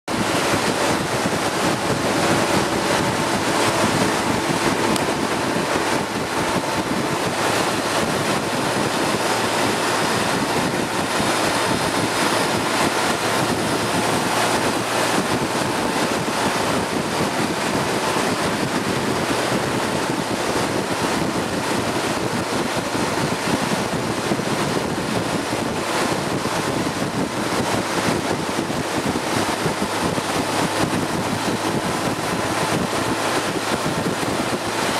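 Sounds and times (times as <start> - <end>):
vehicle engine: 0.0 - 34.9
road noise: 0.1 - 20.4
wind rushing over microphone: 0.1 - 34.9.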